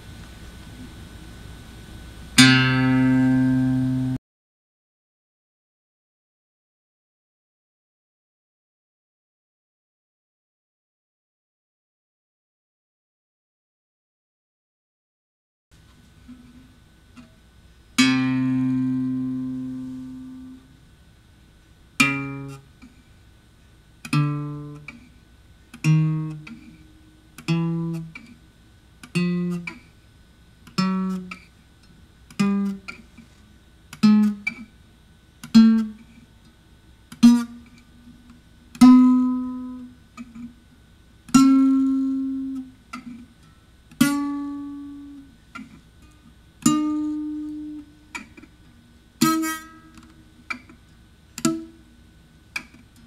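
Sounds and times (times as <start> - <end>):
acoustic guitar notes plucked: 2.4 - 4.2, 18.0 - 20.7, 22.0 - 22.7, 24.1 - 25.0, 25.8 - 28.4, 29.1 - 29.8, 30.7 - 31.5, 34.0 - 34.7, 35.5 - 36.1, 37.2 - 37.7, 38.8 - 40.5, 41.3 - 43.2, 44.0 - 45.8, 46.6 - 48.5, 49.2 - 50.8, 51.4 - 51.8.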